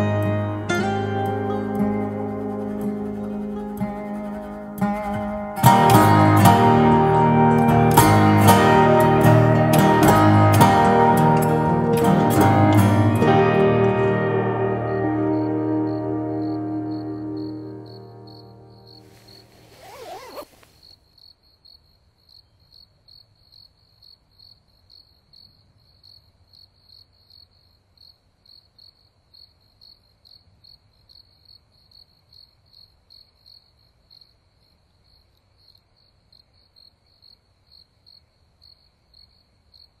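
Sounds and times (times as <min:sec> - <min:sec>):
music: 0:00.0 - 0:19.6
cricket chirping: 0:01.5 - 0:05.6, 0:15.3 - 0:40.0.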